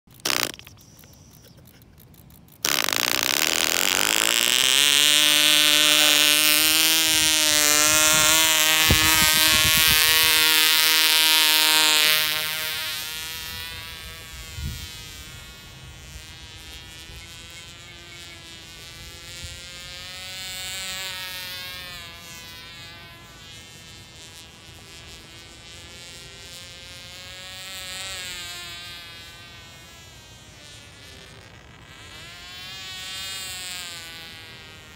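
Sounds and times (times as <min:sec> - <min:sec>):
model airplane engine buzzing: 0:00.1 - 0:34.9.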